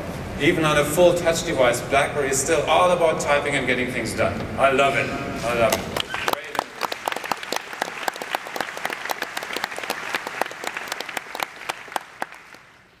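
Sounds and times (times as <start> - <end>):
audience applauding: 5.9 - 13.0.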